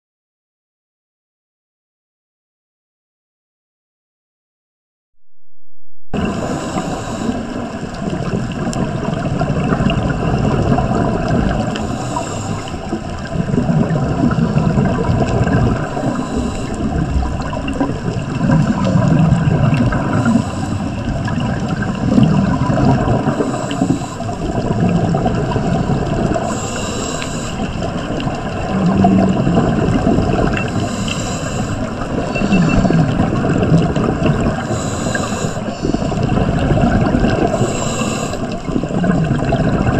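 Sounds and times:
low underwater gurgling rumble: 6.2s - 39.9s
regulator exhaust bubbles bursting: 12.8s - 23.8s, 27.8s - 31.0s, 31.6s - 39.9s.

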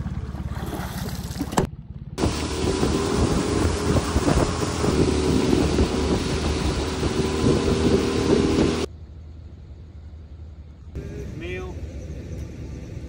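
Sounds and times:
boat motor running: 0.0s - 8.9s
wind noise on microphone: 2.2s - 8.9s.

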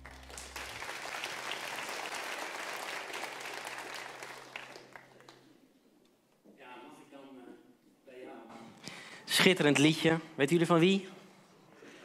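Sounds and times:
congregation applauding: 0.0s - 5.5s.

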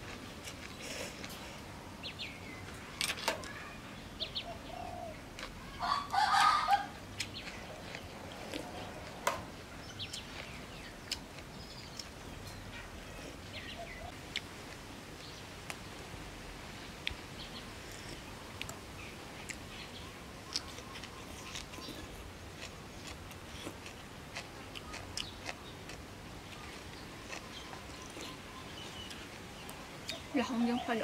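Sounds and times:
chicken calling: 4.5s - 7.0s.

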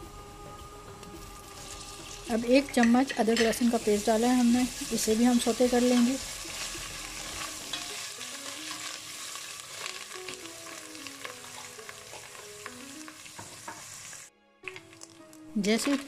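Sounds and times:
onions sizzling in oil: 1.4s - 16.0s
spoon scraping and tapping pot: 6.0s - 8.1s.

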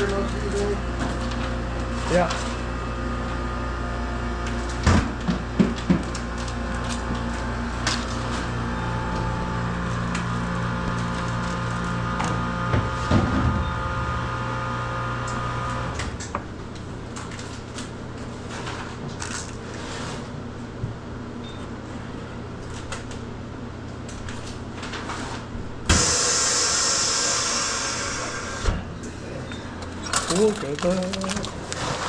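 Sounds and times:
vacuum packing machine motor hum: 0.0s - 20.6s, 24.0s - 29.0s, 29.8s - 32.0s
loud air hiss: 25.9s - 28.7s.

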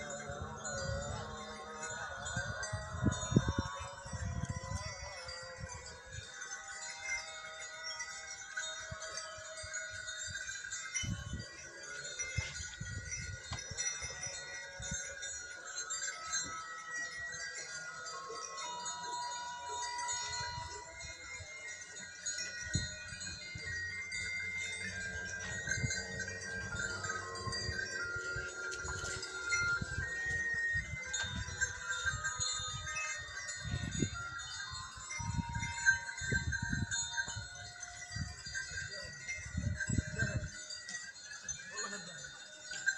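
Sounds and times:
animal bells clinking: 0.0s - 42.9s.

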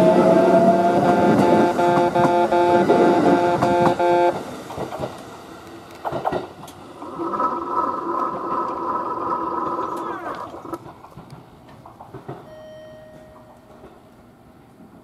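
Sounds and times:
level crossing alarm beeping: 0.0s - 4.5s, 12.4s - 13.6s
train clicks: 0.0s - 7.2s, 10.6s - 15.0s.

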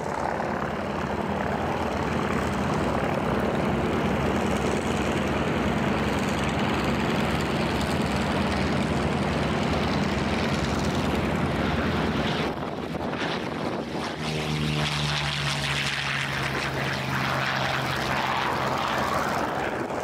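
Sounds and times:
propeller plane engine droning: 0.0s - 20.0s.

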